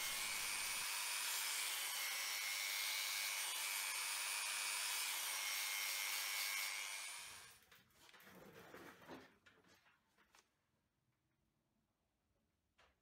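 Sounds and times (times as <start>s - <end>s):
belt sander sanding wood: 0.0s - 7.4s.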